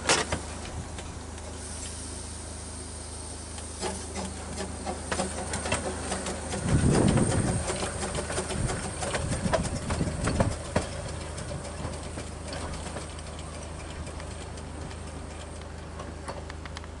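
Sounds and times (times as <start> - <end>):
steam locomotive running: 0.0 - 17.0
sharp clicks and knocks: 3.8 - 17.0.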